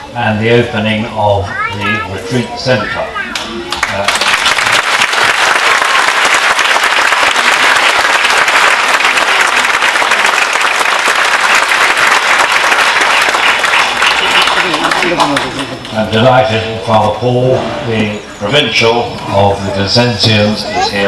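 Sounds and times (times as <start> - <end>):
crowd applauding: 3.7 - 15.9.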